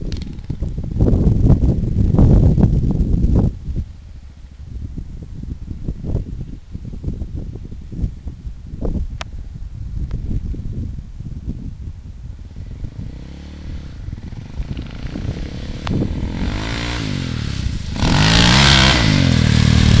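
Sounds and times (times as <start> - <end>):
quad engine revving: 12.9 - 20.0.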